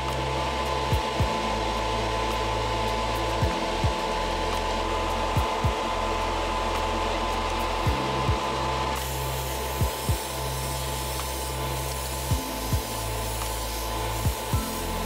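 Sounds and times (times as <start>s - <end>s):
extractor fan whoosh: 0.0s - 15.0s
kick drum beating: 0.9s - 1.4s, 3.4s - 4.0s, 5.4s - 5.8s, 7.9s - 8.4s, 9.8s - 10.2s, 14.2s - 14.7s.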